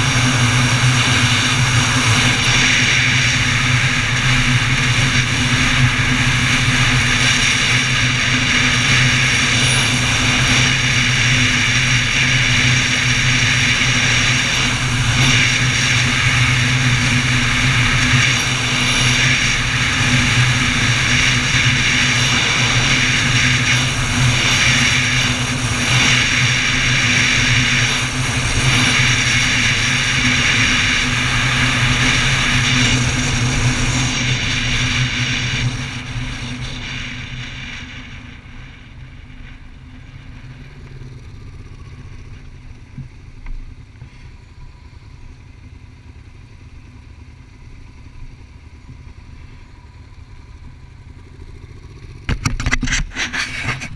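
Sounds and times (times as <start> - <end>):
wind rush on microphone: 0.0 - 40.5
motorcycle engine running: 0.0 - 53.9
knocks and rubs on microphone: 52.3 - 53.9.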